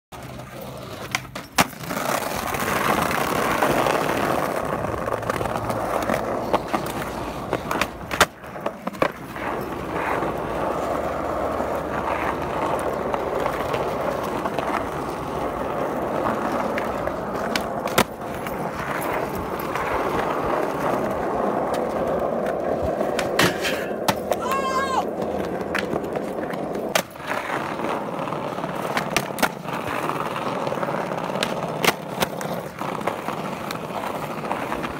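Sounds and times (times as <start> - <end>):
skateboard wheels rolling on asphalt: 0.1 - 34.9
skateboard clacks: 0.2 - 34.9.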